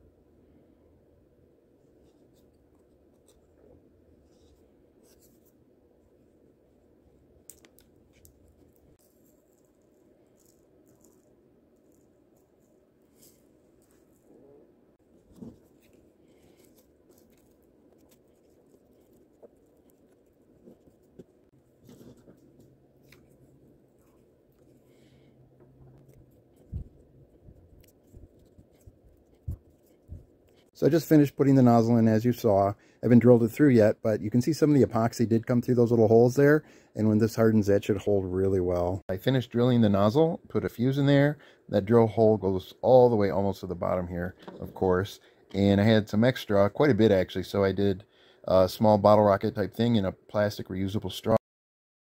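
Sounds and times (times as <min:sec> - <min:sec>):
wooden stick stirring epoxy: 0:15.0 - 0:30.8.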